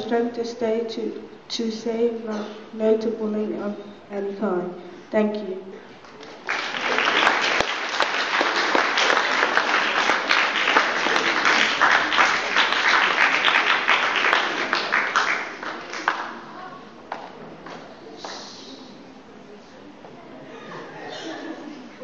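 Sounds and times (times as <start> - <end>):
audience applauding: 6.1 - 16.4.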